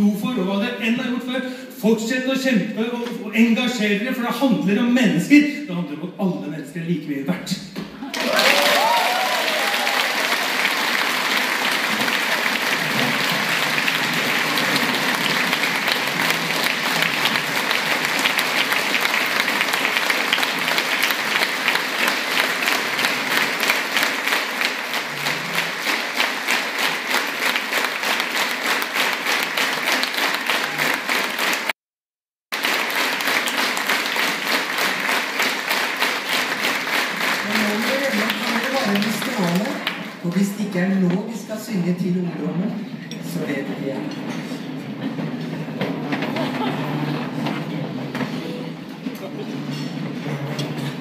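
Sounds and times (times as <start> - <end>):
audience applause: 8.0 - 31.7, 32.5 - 40.6, 44.8 - 51.0.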